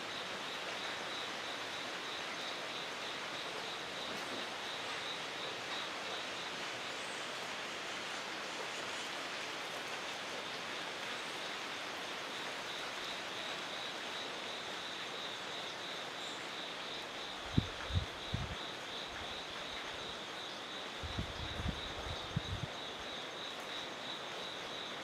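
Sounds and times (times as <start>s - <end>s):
outdoor background hiss: 0.0s - 25.0s.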